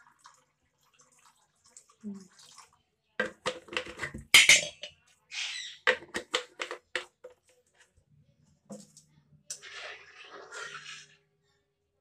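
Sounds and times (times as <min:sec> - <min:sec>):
ladle clinking on a steel pan: 0:04.3 - 0:05.0.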